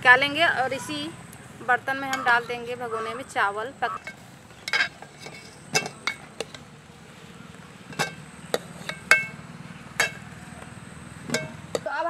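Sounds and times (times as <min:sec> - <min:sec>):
spoon clinking on metal: 0:03.9 - 0:06.7, 0:07.9 - 0:09.4, 0:10.0 - 0:10.4, 0:11.2 - 0:11.9.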